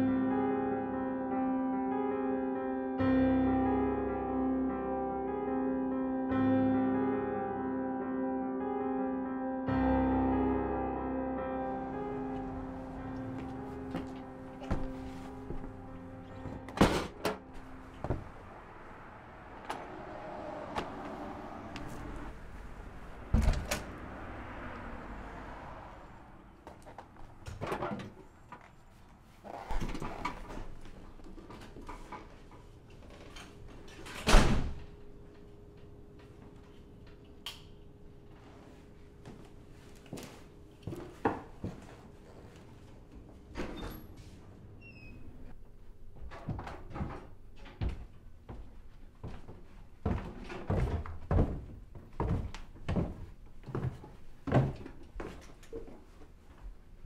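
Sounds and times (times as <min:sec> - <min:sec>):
heavy footsteps on wooden stairs: 0:13.1 - 0:18.3, 0:46.2 - 0:55.5
door opening with click and squeak: 0:43.5 - 0:44.2, 0:44.8 - 0:45.5.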